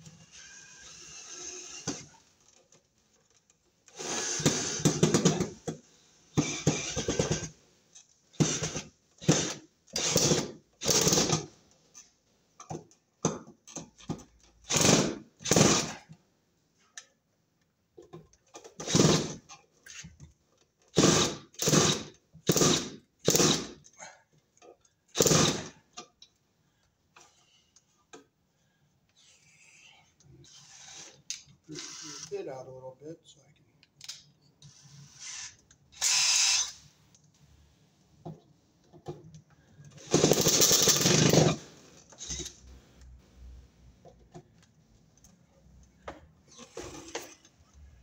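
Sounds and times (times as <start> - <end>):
cordless drill driving screws: 0.2 - 2.2, 3.9 - 5.4, 6.3 - 7.5, 8.4 - 11.5, 14.7 - 16.0, 18.8 - 19.4, 20.9 - 23.8, 25.2 - 25.8, 30.4 - 32.4, 34.6 - 36.9, 40.0 - 42.7.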